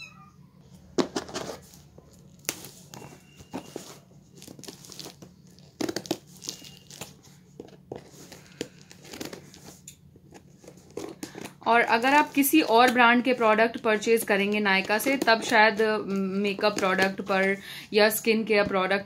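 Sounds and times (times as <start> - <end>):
packing tape crinkling and tearing: 1.1 - 12.9.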